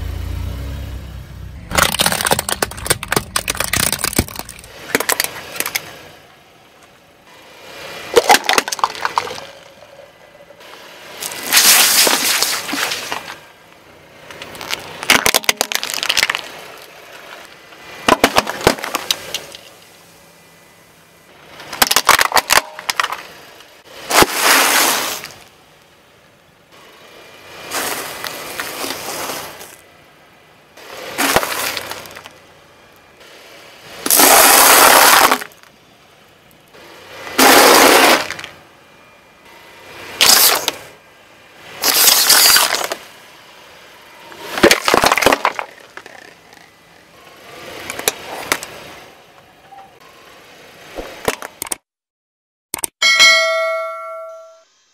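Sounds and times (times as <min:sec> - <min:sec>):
car tyre crushing objects: 0:01.6 - 0:06.2, 0:07.8 - 0:10.5, 0:11.1 - 0:20.0, 0:21.4 - 0:25.6, 0:27.5 - 0:29.9, 0:30.8 - 0:33.0, 0:34.0 - 0:35.8, 0:37.0 - 0:38.6, 0:40.2 - 0:41.0, 0:41.6 - 0:43.2, 0:44.3 - 0:46.8, 0:47.6 - 0:49.0, 0:50.9 - 0:51.8.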